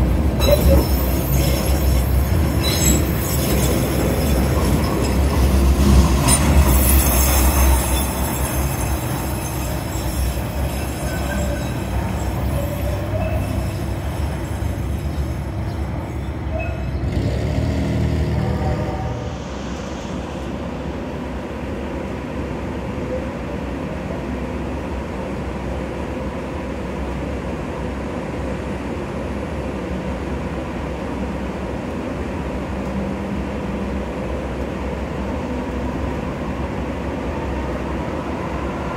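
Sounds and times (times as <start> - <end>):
train rumbling past: 0.0 - 38.9
wheel squeal on rails: 0.4 - 17.6.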